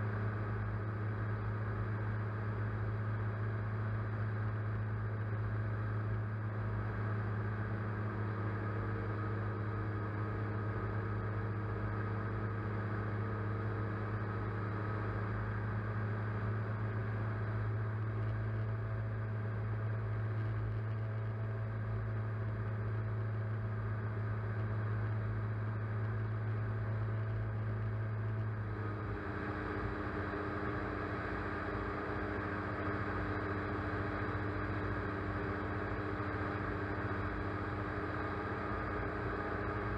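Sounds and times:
camera drone propellers humming: 28.3 - 39.9.

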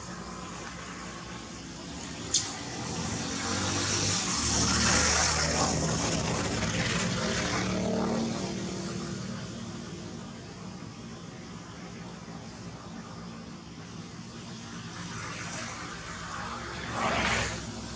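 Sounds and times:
passing engine: 0.0 - 17.9
sharp click: 2.0 - 2.7.

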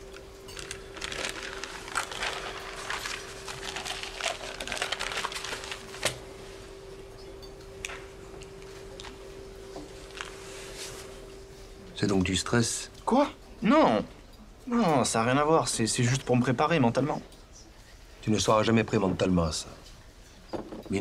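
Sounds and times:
sharp paper crack: 0.5 - 6.2
newspaper rustling: 0.5 - 6.3, 9.8 - 11.2.

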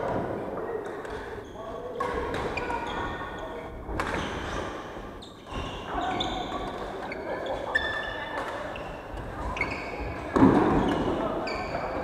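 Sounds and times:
shoes squeaking on floor: 2.5 - 12.0.

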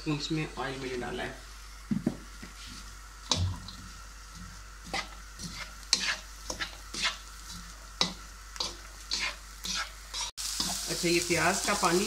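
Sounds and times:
onions sizzling faintly: 0.0 - 12.0
spatula scraping a wok: 4.3 - 10.9.

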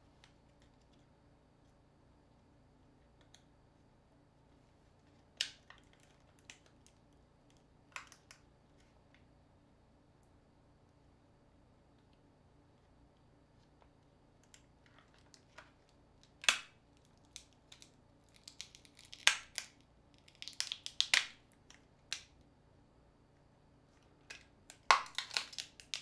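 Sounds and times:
plastic clicks and snaps: 5.4 - 8.4.

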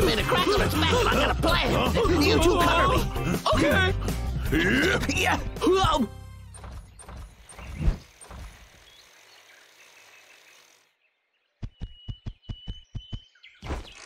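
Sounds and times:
rapid mechanical thuds: 6.5 - 9.0.

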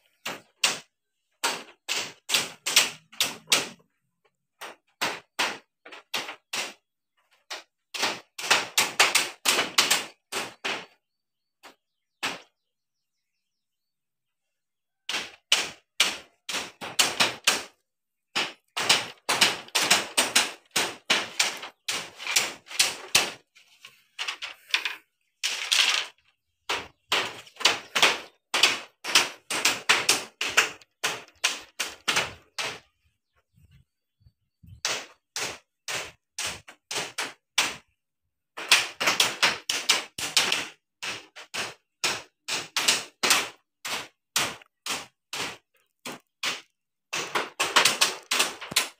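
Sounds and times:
hammers nailing bamboo slats: 0.1 - 3.9, 4.5 - 11.0, 11.6 - 12.7, 15.1 - 33.0, 34.6 - 48.9.

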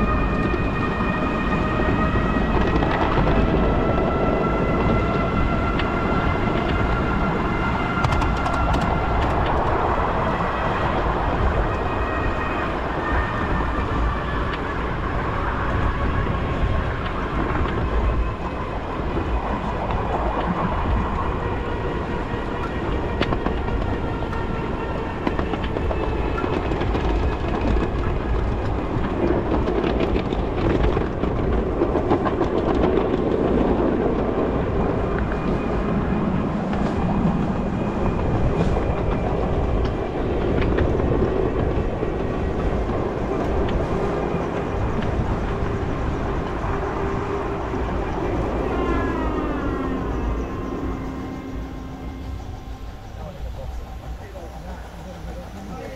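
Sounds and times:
wheels rumbling on rail: 0.0 - 55.9
clicks over rail joints: 7.8 - 9.8.

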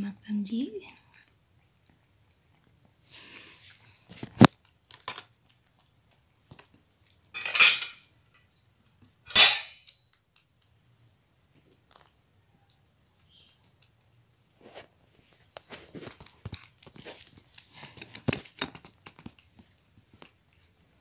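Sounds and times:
metal bowl clinking: 7.4 - 8.0, 9.3 - 9.9
metal bowl scraping: 7.4 - 8.0.

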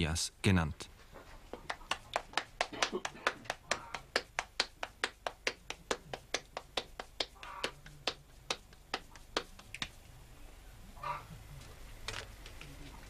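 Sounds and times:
hands slapping dough: 1.5 - 10.0.

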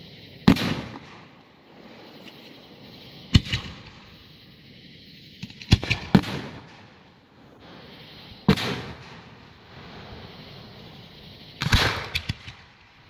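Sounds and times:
small firework pops: 0.0 - 4.5, 5.2 - 13.0
loud firework bangs with echo: 0.4 - 1.4, 3.3 - 4.2, 5.4 - 7.2, 7.8 - 10.7, 11.5 - 13.0.

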